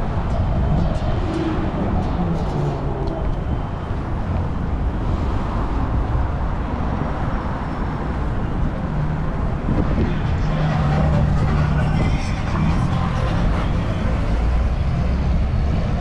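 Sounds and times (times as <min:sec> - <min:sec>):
cars going by: 0:00.0 - 0:16.0.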